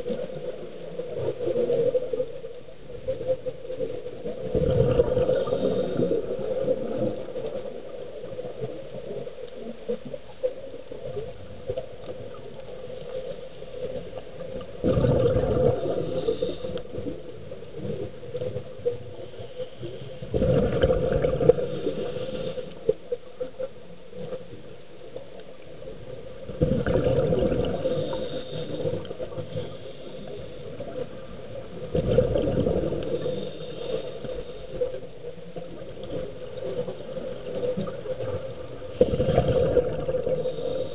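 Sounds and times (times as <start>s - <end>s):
exhaled bubbles rushing: 0.0s - 8.8s, 13.8s - 19.0s, 20.2s - 22.5s, 25.9s - 33.8s, 35.6s - 40.8s
diver breathing through regulator: 4.9s - 6.7s, 15.0s - 17.1s, 21.5s - 22.9s, 27.6s - 31.0s, 32.7s - 35.0s, 39.4s - 40.9s.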